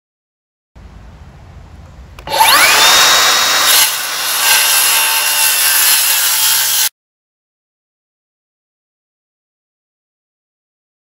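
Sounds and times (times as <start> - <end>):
circular saw cutting wood: 2.2 - 7.0.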